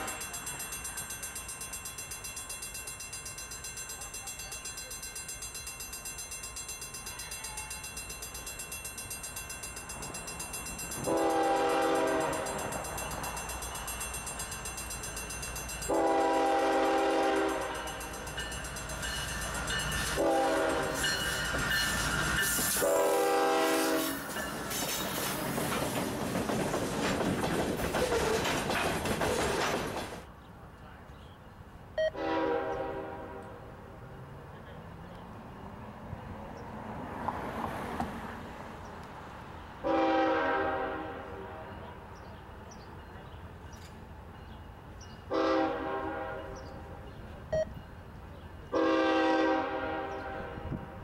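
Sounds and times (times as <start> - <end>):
bell ringing: 0.0 - 16.2, 17.4 - 22.6
freight train rumbling past: 0.0 - 30.6, 31.8 - 51.0
locomotive air horn: 11.0 - 12.7, 15.9 - 18.0, 20.2 - 21.2, 22.7 - 24.3, 32.1 - 33.6, 39.8 - 41.8, 45.3 - 46.8, 48.7 - 51.0.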